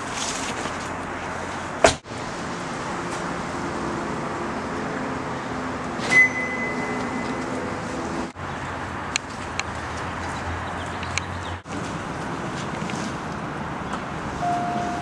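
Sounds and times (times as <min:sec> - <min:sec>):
high electronic beep: 0:06.1 - 0:07.8.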